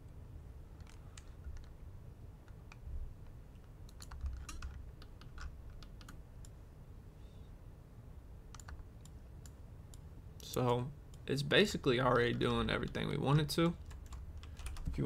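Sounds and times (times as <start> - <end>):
faint low hum: 0.0 - 15.0
keyboard and mouse clicks: 0.8 - 1.8, 2.4 - 6.6, 8.5 - 10.5.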